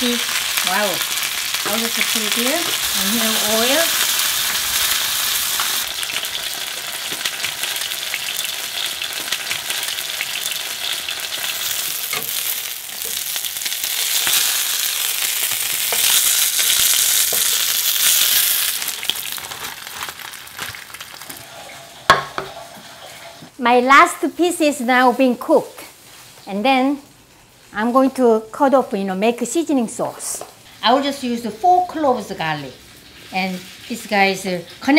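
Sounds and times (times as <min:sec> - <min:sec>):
oil crackling: 0:00.0 - 0:22.7
fish sizzling in hot oil: 0:00.0 - 0:23.5, 0:30.6 - 0:34.9.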